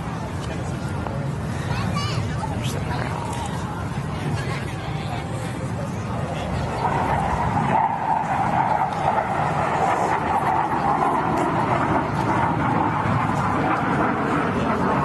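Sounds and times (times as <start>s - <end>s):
jet roar passing overhead: 0.0s - 15.0s.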